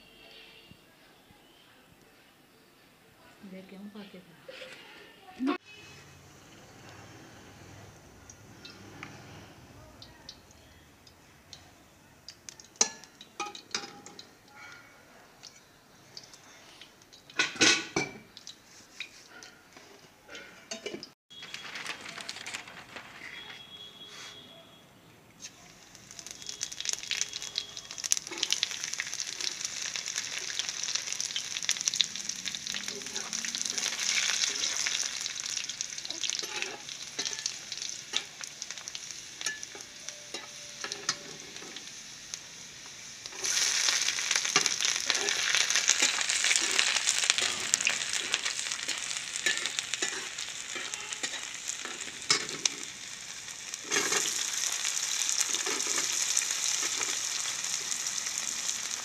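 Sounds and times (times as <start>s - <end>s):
hot oil sizzling and crackling: 5.5s - 23.8s, 25.4s - 59.0s
onions dropping into oil: 25.8s - 42.4s, 43.2s - 59.0s
metal spatula scraping: 36.0s - 38.3s, 43.3s - 52.9s, 53.8s - 54.4s.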